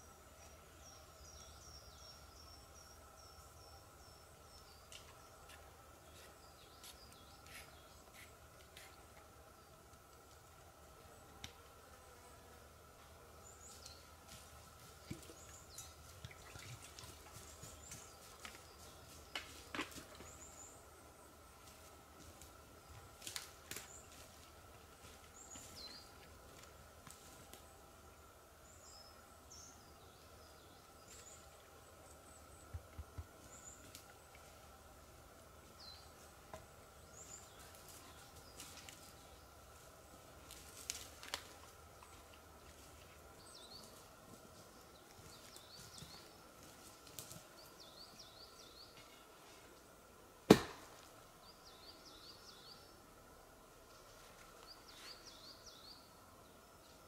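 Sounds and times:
small birds chirping: 0.0 - 10.4, 40.6 - 49.3
loud sharp knock: 50.5 - 50.9.

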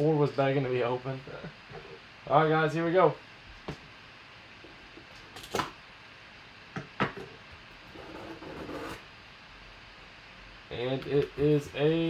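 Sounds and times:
cardboard lid rubbing: 7.9 - 9.0.

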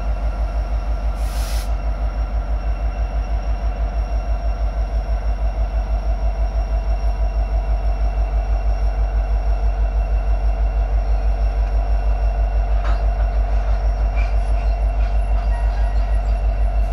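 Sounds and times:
diesel locomotive engines throbbing: 0.0 - 16.9.

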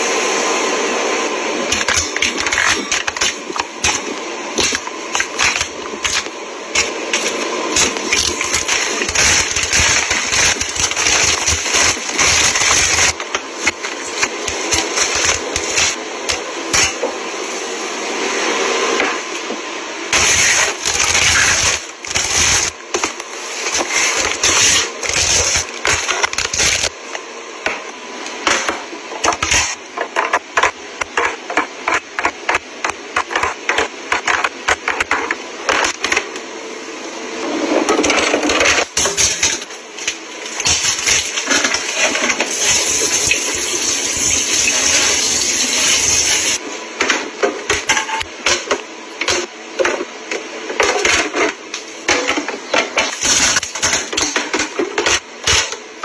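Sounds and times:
plastic packaging crinkling: 6.8 - 16.0.

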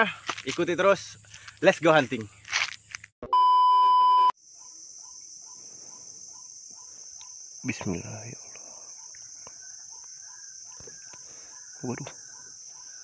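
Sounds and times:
insects buzzing: 4.4 - 13.0
faint regular ticks: 7.2 - 7.4.

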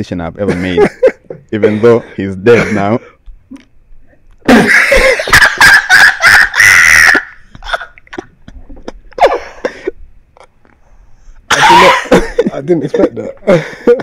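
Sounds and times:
man laughing loudly: 0.5 - 3.0, 4.5 - 10.0, 11.5 - 14.0.

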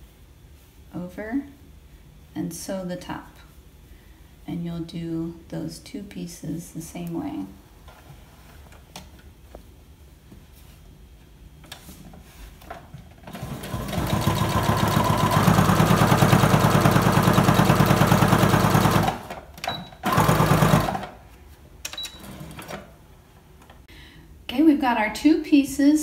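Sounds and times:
electric sewing machine stitching: 13.2 - 21.2, 22.2 - 22.8.

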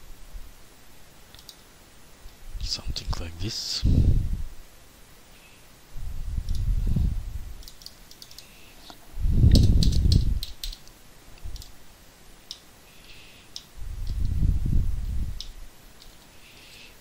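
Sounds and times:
mouse and keyboard clicks: 1.3 - 1.6, 7.6 - 11.7
low rumbles on microphone: 3.8 - 4.6, 6.0 - 7.6, 9.1 - 10.5, 13.8 - 15.4.

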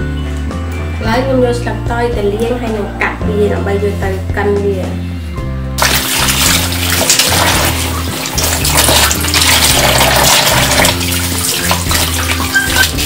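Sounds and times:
leaves rubbed under water: 5.8 - 13.0
tap water splashing into basin: 5.8 - 13.0.

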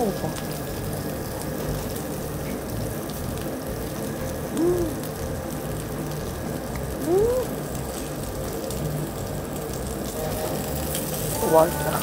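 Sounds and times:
meat sizzling on grill: 0.0 - 12.0
person humming mmm: 4.5 - 5.1, 7.0 - 7.6.

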